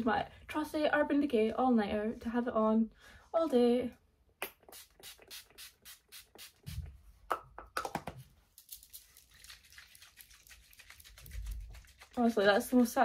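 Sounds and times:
short misting sprays: 4.7 - 6.9.

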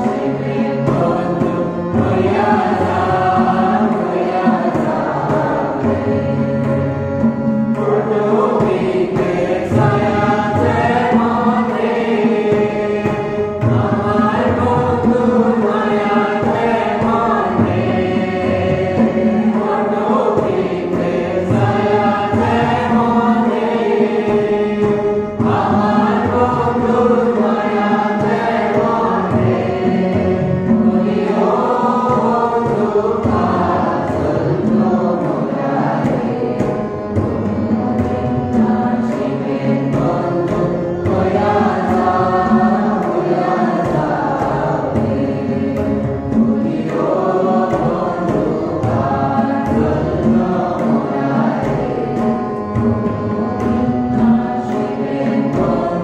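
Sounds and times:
group singing: 0.0 - 56.0.

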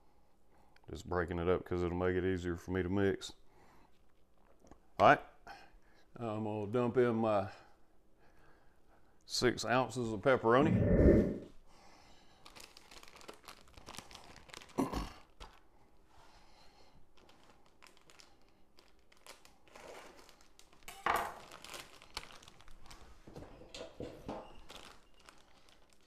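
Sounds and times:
plastic bag crinkling: 12.3 - 15.7, 16.8 - 23.3, 24.4 - 26.0.

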